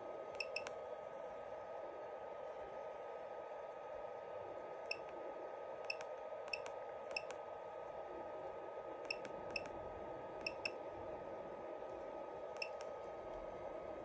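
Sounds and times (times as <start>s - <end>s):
faint steady hum: 0.0s - 14.0s
keypad beeps with clicks: 0.4s - 0.7s, 4.9s - 5.1s, 5.8s - 7.3s, 9.1s - 9.7s, 10.4s - 10.8s, 12.6s - 12.9s.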